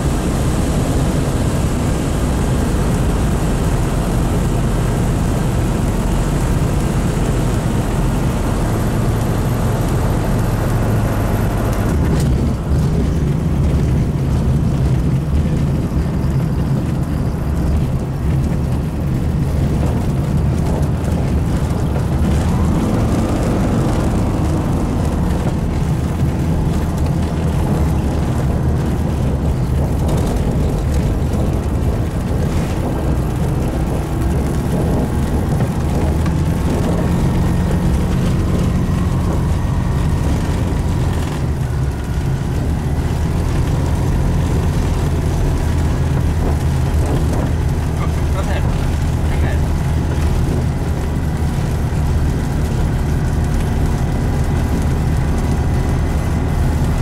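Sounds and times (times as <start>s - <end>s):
propeller aircraft engine droning: 0.0s - 57.0s.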